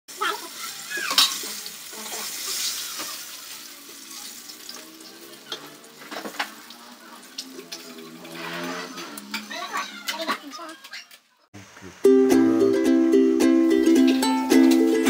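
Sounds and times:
hot oil sizzling and crackling: 0.1 - 9.3.

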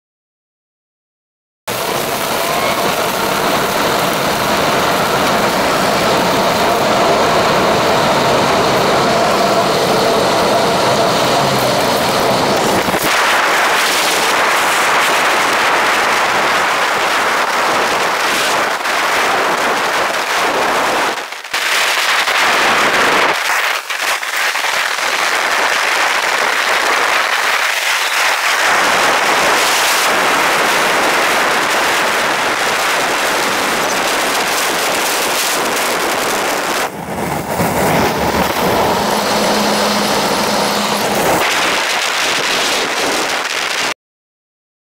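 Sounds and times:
rain and debris hitting vehicle: 1.7 - 44.0
tornado wind buffeting vehicle: 1.7 - 44.0.

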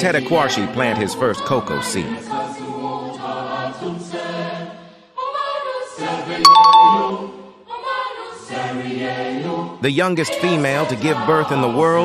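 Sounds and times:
choir singing held notes: 2.2 - 9.7
bright chime: 6.5 - 7.2.

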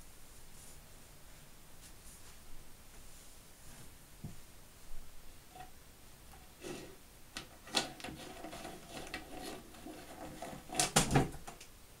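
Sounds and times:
plastic cube clicking and knocking: 10.2 - 11.6.

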